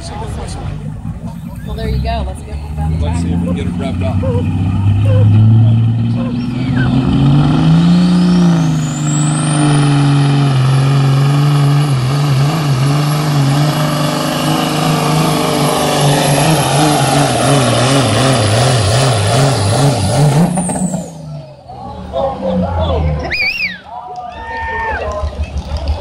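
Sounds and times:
diesel truck engine at full throttle: 0:00.0 - 0:26.0
high turbo whistle: 0:23.2 - 0:23.9.

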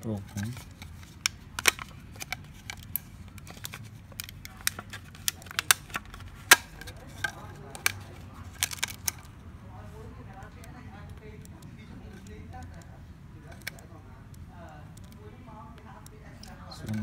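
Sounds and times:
plastic and metal parts clicking: 0:00.2 - 0:09.4, 0:10.3 - 0:13.9.

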